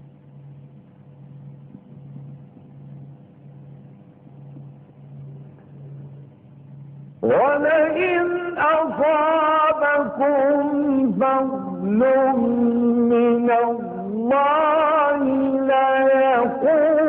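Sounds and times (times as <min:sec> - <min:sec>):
low pulsing hum: 0:00.0 - 0:17.0
man chanting recitation: 0:07.2 - 0:17.0.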